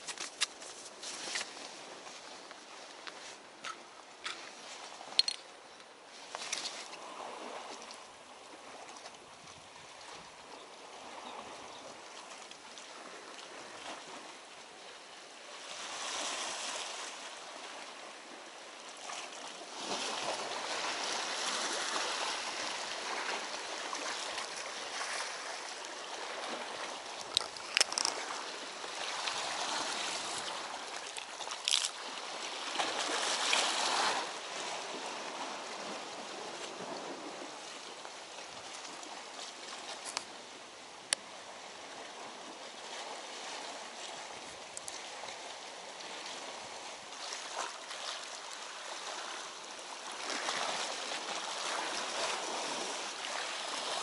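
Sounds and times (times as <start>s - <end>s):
seawater splashing over rocks: 15.6s - 54.0s.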